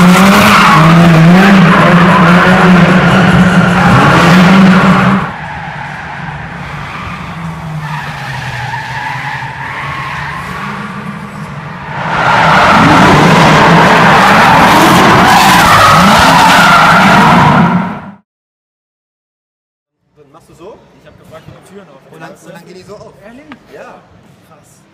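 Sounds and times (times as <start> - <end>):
car engine revving hard: 0.0 - 5.3.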